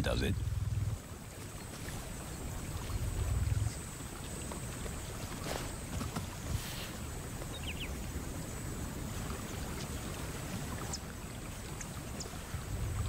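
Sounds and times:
low rumble: 0.0s - 1.1s, 2.6s - 4.3s, 12.7s - 13.0s
faint high chirps and ticks: 0.0s - 5.5s, 6.9s - 10.2s, 10.8s - 13.0s
water-like noise: 0.0s - 13.0s.

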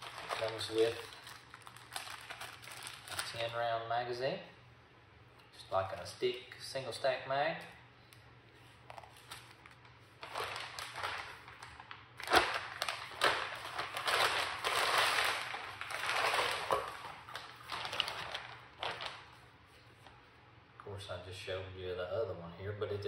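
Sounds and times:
plastic wrapping crinkling: 0.0s - 3.6s, 8.8s - 20.3s.

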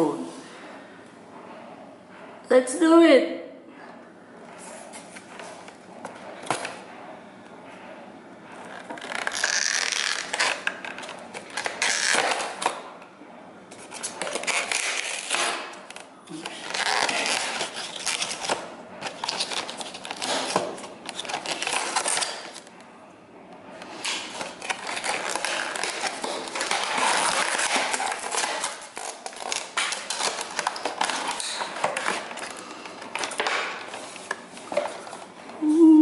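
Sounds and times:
paper packaging rustling and tearing: 8.8s - 12.8s, 13.7s - 22.6s, 23.9s - 35.2s.

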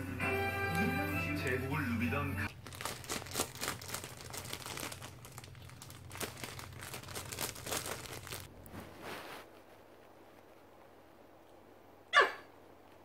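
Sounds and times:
plastic bag crinkling: 2.5s - 8.7s.

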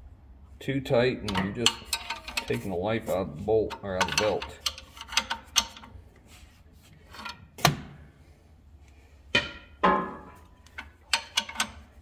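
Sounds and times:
metal tools clanking: 1.2s - 5.9s, 9.4s - 12.0s.

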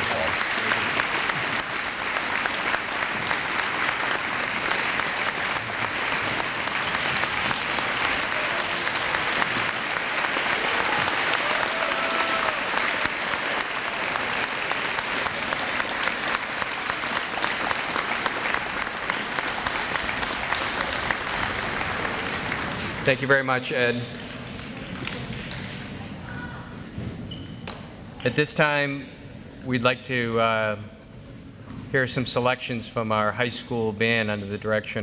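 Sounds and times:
crowd applauding: 0.0s - 26.0s.

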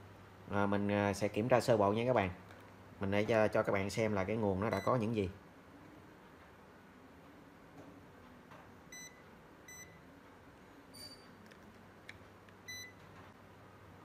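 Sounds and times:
multimeter beeping: 4.7s - 5.0s, 8.9s - 10.0s, 10.9s - 11.3s, 12.6s - 13.0s.

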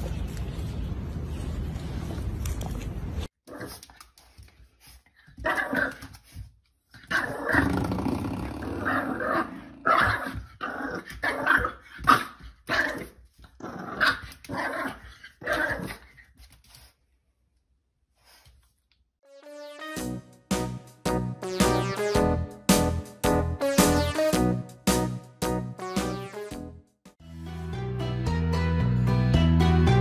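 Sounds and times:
dog growling and barking: 7.0s - 16.0s.

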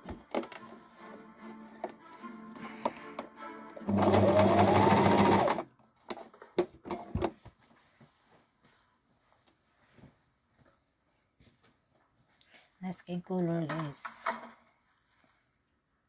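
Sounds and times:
sewing machine stitching: 3.8s - 5.7s.

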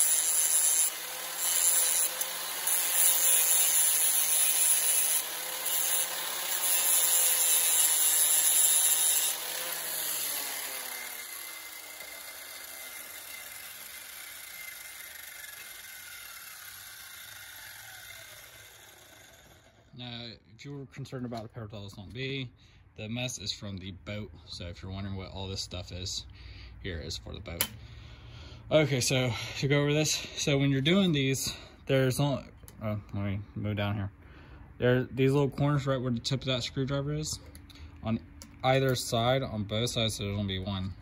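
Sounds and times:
angle grinder grinding metal: 0.0s - 19.9s
grinder disc winding down: 0.0s - 19.9s.

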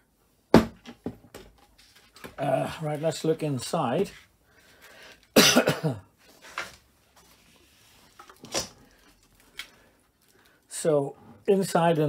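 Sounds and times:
person coughing: 5.4s - 6.1s.

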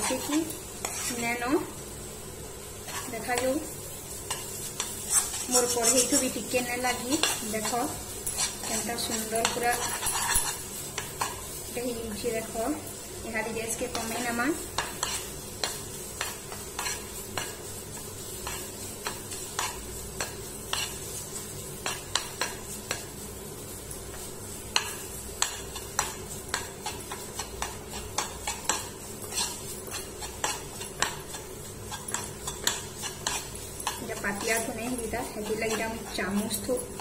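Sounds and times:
metal spoon scraping a pan: 0.0s - 1.3s, 2.8s - 12.5s, 13.7s - 23.1s, 24.1s - 37.0s.

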